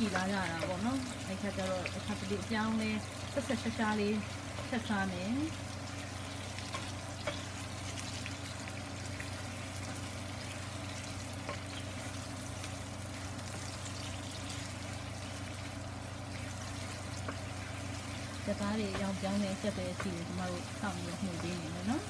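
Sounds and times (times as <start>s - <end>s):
meat sizzling in a pan: 0.0s - 22.0s.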